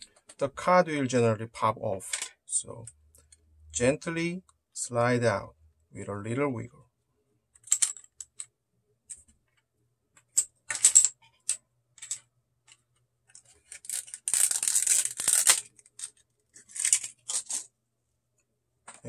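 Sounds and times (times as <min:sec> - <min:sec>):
plastic clamshell case crinkling: 0:13.3 - 0:17.7.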